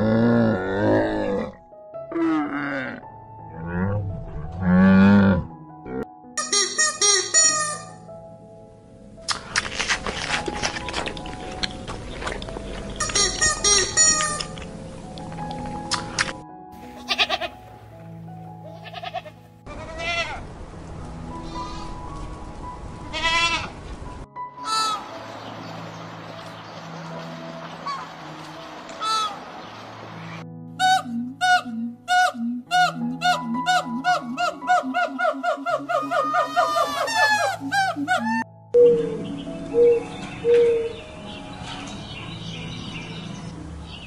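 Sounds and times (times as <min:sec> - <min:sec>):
faint background music: 0:00.0 - 0:44.0
goats bleating: 0:17.0 - 0:17.6, 0:18.7 - 0:20.4.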